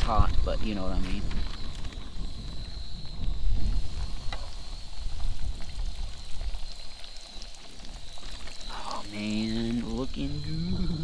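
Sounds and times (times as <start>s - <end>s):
wind rumbling on microphone: 0.0s - 11.0s
fish frying in oil: 3.5s - 11.0s.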